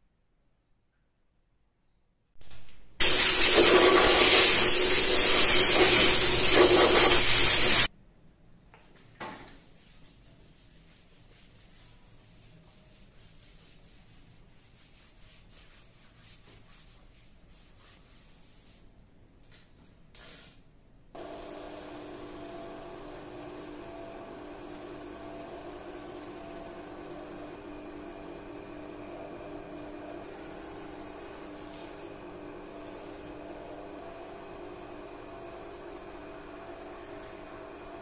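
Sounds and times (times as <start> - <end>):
loud rushing hiss: 3.0 - 7.9
cloth rubbing on wood: 9.6 - 18.9.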